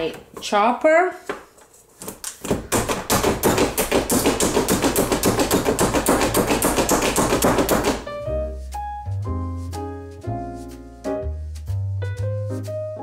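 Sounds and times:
piano music: 7.5s - 13.0s.

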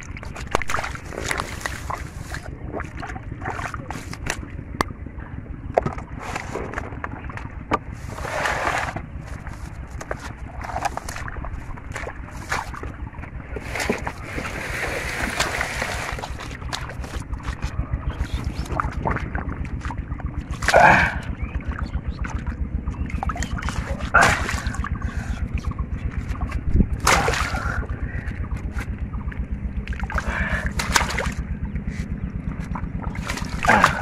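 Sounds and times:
loud water splashes: 0.0s - 4.1s, 13.6s - 17.5s, 18.2s - 21.4s, 23.2s - 25.6s, 26.4s - 28.0s, 29.8s - 31.5s, 33.0s - 34.0s
splashing in muddy water: 0.0s - 4.8s, 5.6s - 34.0s
rapid low pulsing: 0.0s - 34.0s.

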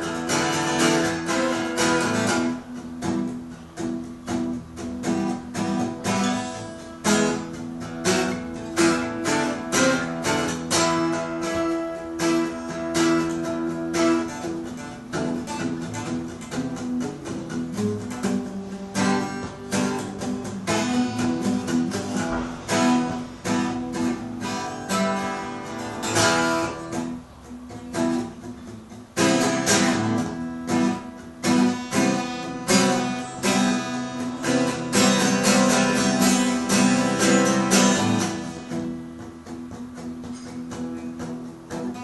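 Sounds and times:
twelve-string acoustic guitar strumming: 0.0s - 42.0s.

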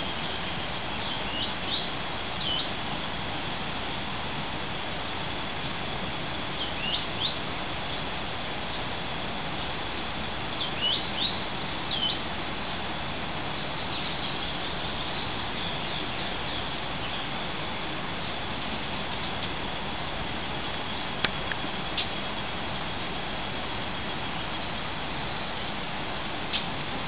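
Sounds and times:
background hiss: 0.0s - 27.0s
high insect chorus: 0.0s - 27.0s
birds whistling: 1.0s - 2.8s, 6.5s - 8.0s, 10.5s - 12.3s.

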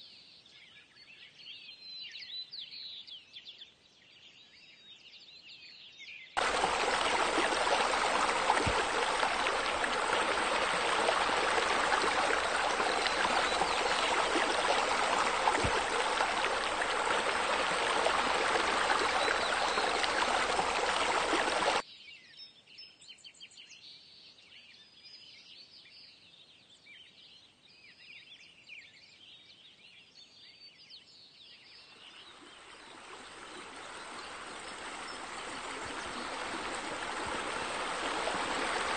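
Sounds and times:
faint birds chirping: 6.4s - 21.8s, 31.2s - 38.9s
running water rushing: 6.4s - 21.8s, 32.1s - 38.9s.

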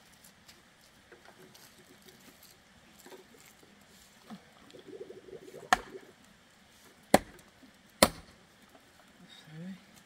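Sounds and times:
digging tool striking earth: 5.7s - 6.0s, 7.1s - 8.4s.

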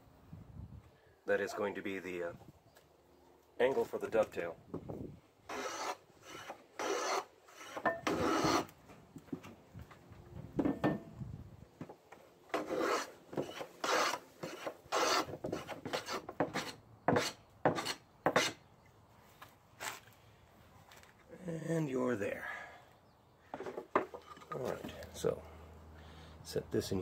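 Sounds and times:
hand plane shaving wood: 12.6s - 18.6s.

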